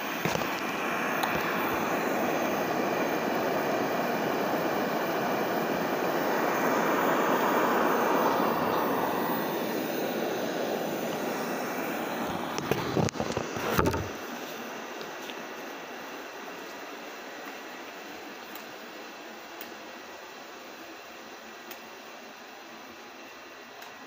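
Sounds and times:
robot vacuum whirring: 0.2s - 14.2s.

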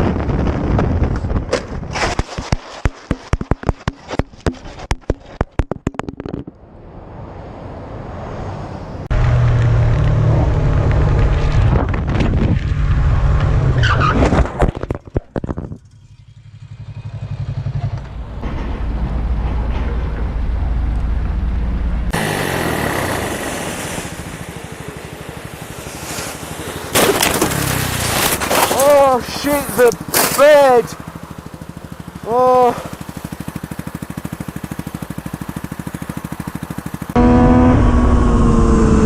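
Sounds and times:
motorcycle engines revving: 15.8s - 18.7s, 22.0s - 39.0s
sharp crash impacts: 26.3s - 28.9s.

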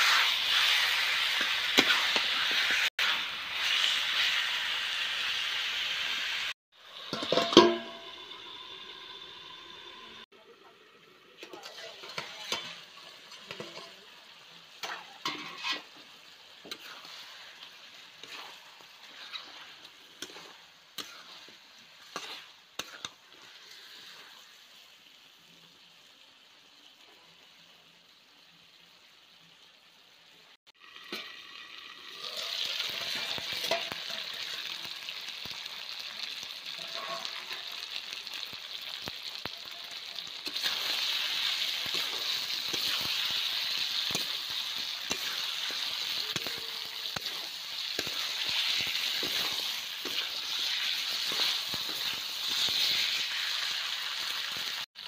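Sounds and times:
curry sizzling in a pan: 0.0s - 55.0s
metal scrapes of stirring: 14.8s - 16.0s, 16.6s - 24.4s, 36.8s - 37.7s, 45.0s - 53.2s.

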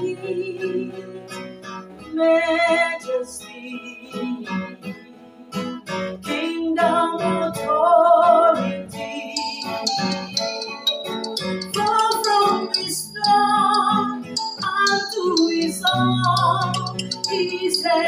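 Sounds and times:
woman singing a slow worship song: 0.0s - 1.0s, 2.1s - 4.7s, 6.3s - 9.6s, 17.3s - 18.0s
classical guitar strumming chords: 0.0s - 18.0s.

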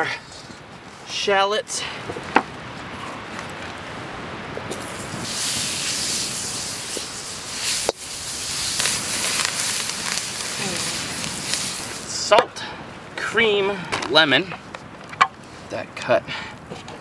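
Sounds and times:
butter and shallots sizzling: 4.7s - 12.3s.

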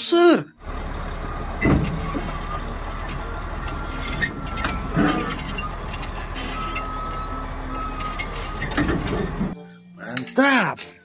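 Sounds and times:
bulldozer diesel engine running: 0.6s - 9.6s.

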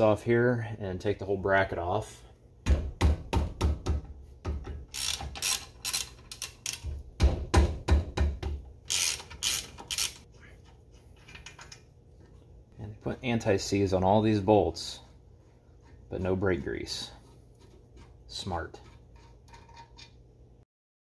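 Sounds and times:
wrench ratcheting clicks: 4.9s - 6.9s, 8.9s - 10.3s.

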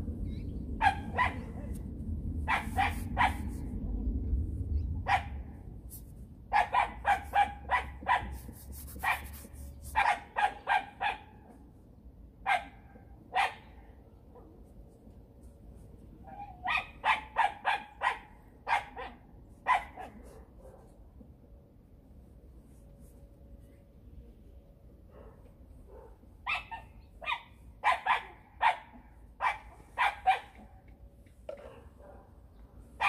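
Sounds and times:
dog barking: 0.8s - 1.8s, 2.5s - 3.6s, 5.1s - 5.4s, 6.5s - 11.6s, 12.4s - 14.5s, 16.4s - 20.9s, 25.1s - 30.7s, 31.5s - 32.3s.

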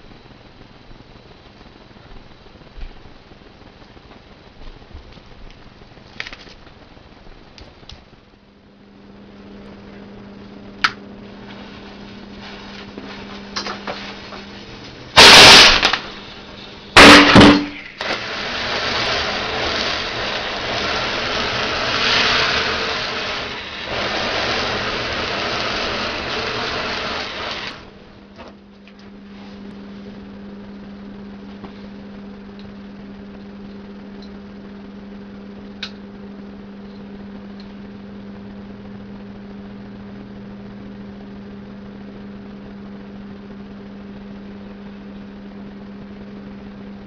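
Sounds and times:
pyrotechnic charge hissing roar: 9.7s - 28.2s
loud blasts: 15.1s - 27.9s.

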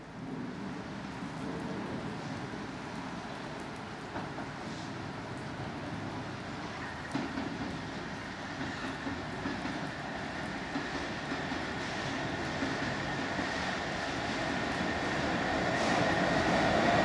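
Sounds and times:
diesel locomotive engine and wheels: 0.0s - 17.0s.

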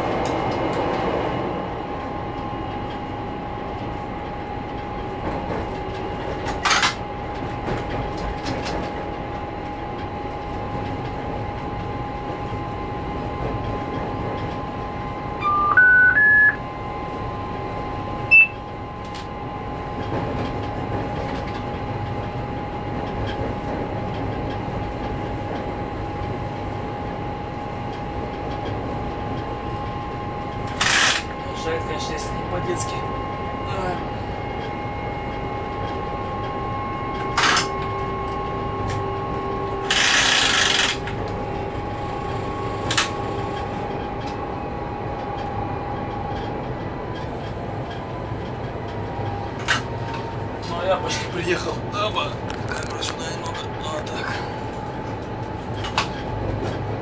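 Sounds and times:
diesel locomotive rumble: 0.0s - 57.0s
steady whine: 14.2s - 19.9s
rising electronic chime: 15.4s - 16.6s
short high beep: 15.4s - 16.6s, 18.3s - 18.6s.

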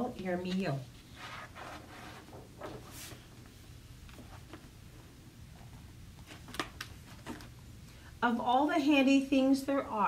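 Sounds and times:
low room hum: 0.0s - 10.0s
paper page swishing: 1.1s - 3.4s
paper rustles and taps: 6.2s - 7.5s.

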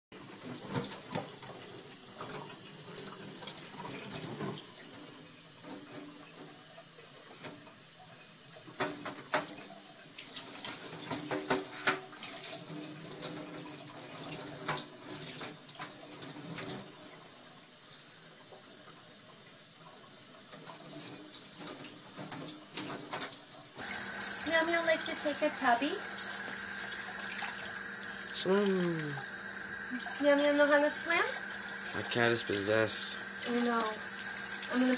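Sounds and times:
faucet running into steel sink: 0.2s - 34.9s.

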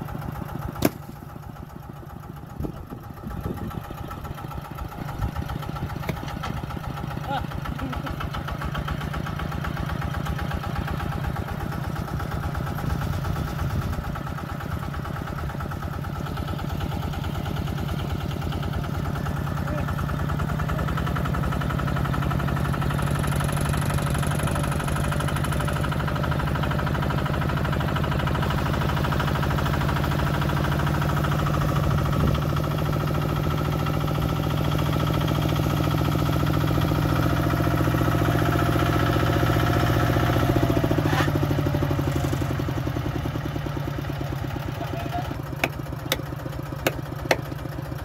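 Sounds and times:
engine running: 0.0s - 48.0s
sharp knocks: 46.8s - 47.4s.

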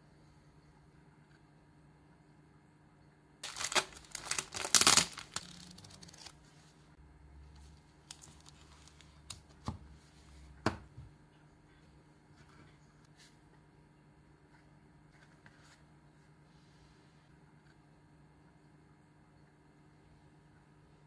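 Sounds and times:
plastic packaging crinkling: 3.4s - 6.4s, 8.0s - 9.4s.

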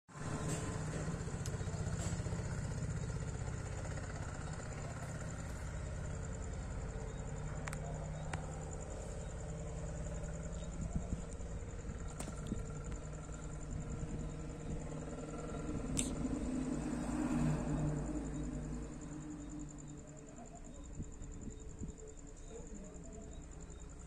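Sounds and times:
small engine idling: 0.1s - 24.0s
faint clicks: 7.6s - 9.0s, 15.9s - 16.2s.

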